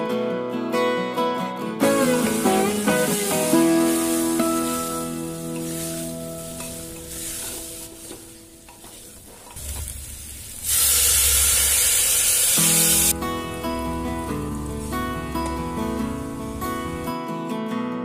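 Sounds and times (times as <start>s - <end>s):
guitar music: 0.0s - 10.0s, 12.5s - 18.0s
wooden spatula stirring potatoes: 1.8s - 9.9s
loud sizzle: 1.8s - 17.1s.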